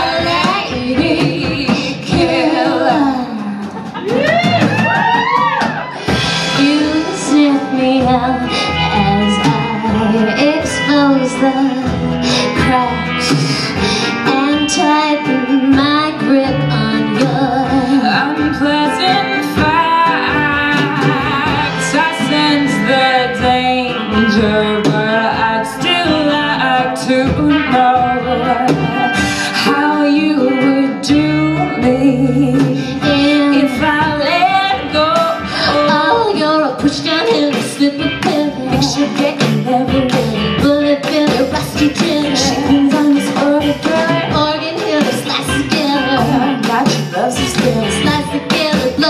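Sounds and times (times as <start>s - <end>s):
pop band playing: 0.0s - 49.0s
women singing: 0.0s - 49.0s.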